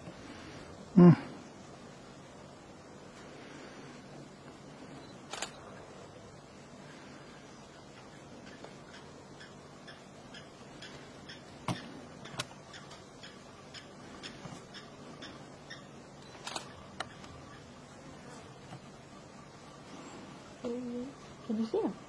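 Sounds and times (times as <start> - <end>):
faint rapid clicks: 5.3 - 5.6.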